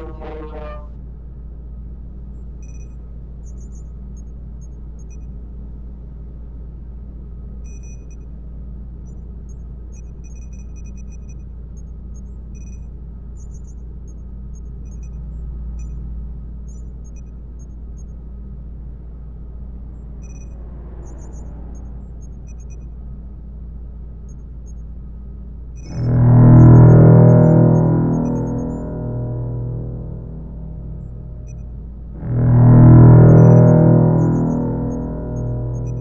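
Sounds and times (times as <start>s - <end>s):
electronic beeps and blips: 0.0s - 0.9s, 20.0s - 22.8s, 25.8s - 36.0s
low hum and rumble: 0.0s - 36.0s.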